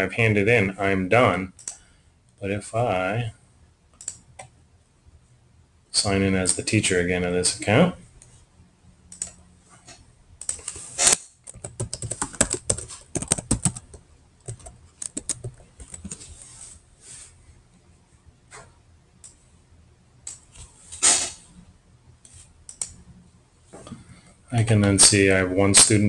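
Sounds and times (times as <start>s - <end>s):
keyboard typing: 11.4s - 16.4s
short hiss: 20.9s - 21.4s.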